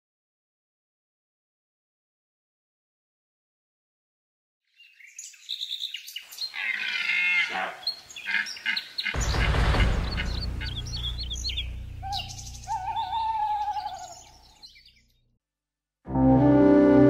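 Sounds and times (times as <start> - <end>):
birds chirping: 4.7 - 15.3
loud deep rumble: 9.2 - 14.6.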